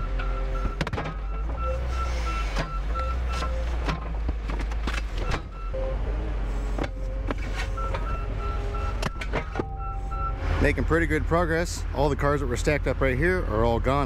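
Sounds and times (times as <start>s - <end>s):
diesel loader engine running: 0.0s - 14.0s.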